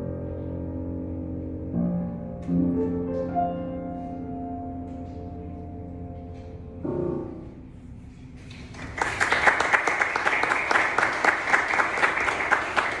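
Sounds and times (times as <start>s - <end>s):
congregation applauding: 8.5s - 13.0s.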